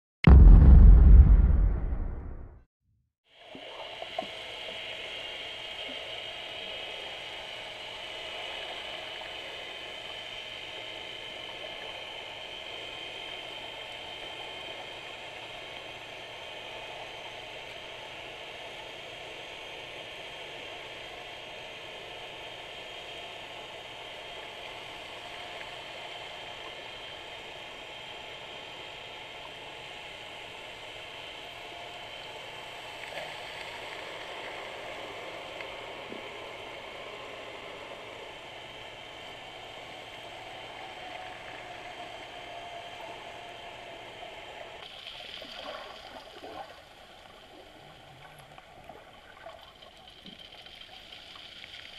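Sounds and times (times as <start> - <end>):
muffled underwater hiss: 44.5 - 51.9.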